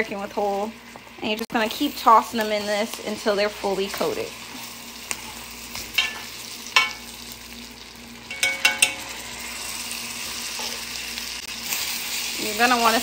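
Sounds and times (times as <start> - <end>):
chicken wings sizzling in butter: 0.0 - 13.0
clinks against a pan: 6.0 - 6.2, 6.8 - 7.0, 8.3 - 9.1.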